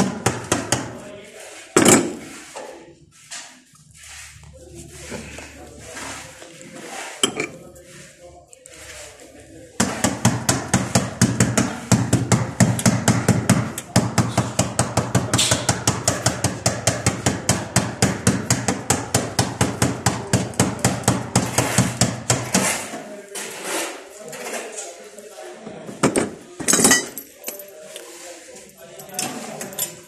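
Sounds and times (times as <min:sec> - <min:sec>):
rapid hammering knocks: 0:09.8 - 0:22.8.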